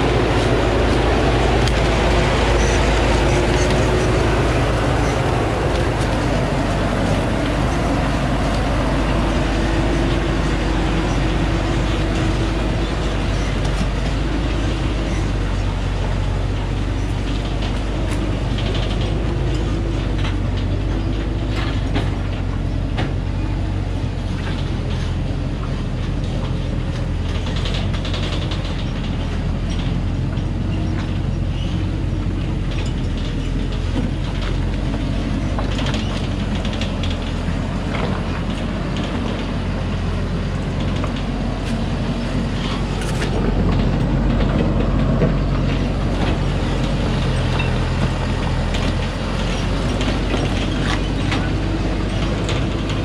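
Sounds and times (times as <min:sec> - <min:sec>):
truck body rattling: 0:00.0 - 0:23.4, 0:25.8 - 0:53.0
diesel truck engine running hard: 0:00.0 - 0:53.0
stones under tyres: 0:26.1 - 0:53.0.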